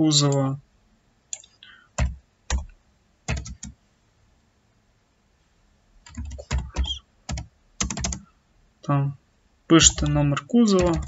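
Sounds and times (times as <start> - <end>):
computer keyboard typing: 1.3 - 2.7, 3.3 - 3.8, 6.0 - 8.2, 9.8 - 11.0.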